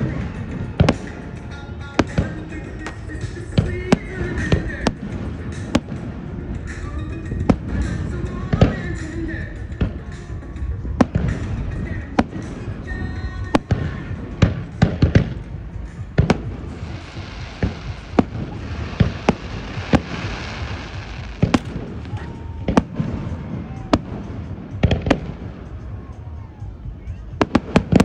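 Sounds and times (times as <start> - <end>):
firework shells bursting: 2.8 - 4.5, 16.2 - 23.3
hissing crackle: 16.3 - 22.3.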